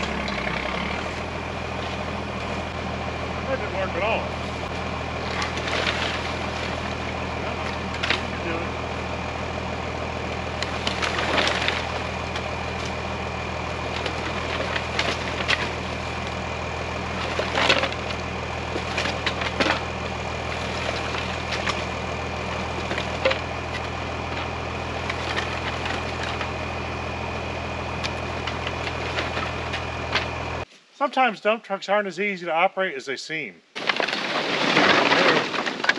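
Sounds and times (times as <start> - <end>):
wood debris clattering: 0.0 - 3.5, 4.2 - 30.6, 33.8 - 35.9
diesel truck engine idling: 0.0 - 30.7.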